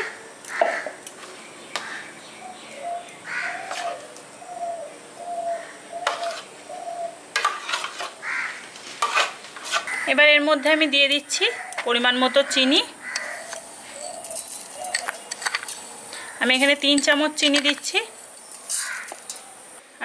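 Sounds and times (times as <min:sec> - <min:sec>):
bird calling: 0:00.5 - 0:07.2, 0:11.5 - 0:17.8
spoon scraping a plate: 0:03.6 - 0:04.1, 0:06.0 - 0:06.5, 0:07.4 - 0:08.2, 0:09.0 - 0:10.0
metal clinking on metal: 0:13.2 - 0:19.5.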